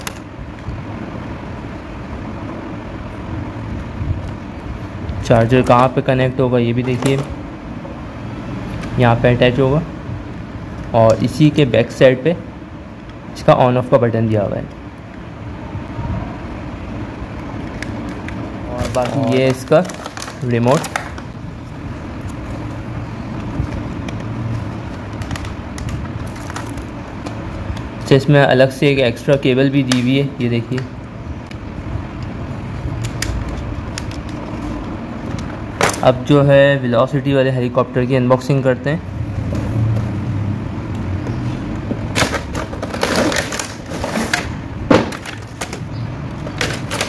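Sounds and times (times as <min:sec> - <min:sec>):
plastic packaging clicks and rustles: 0:17.4 - 0:21.4, 0:22.2 - 0:27.9, 0:33.0 - 0:36.2, 0:42.1 - 0:47.0.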